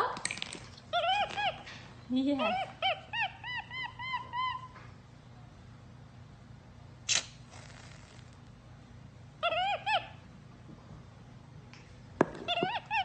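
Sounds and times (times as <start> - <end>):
monkey chirping: 0.9 - 4.8, 9.4 - 10.2, 12.5 - 13.0
whipped-cream can squirting: 7.1 - 8.4.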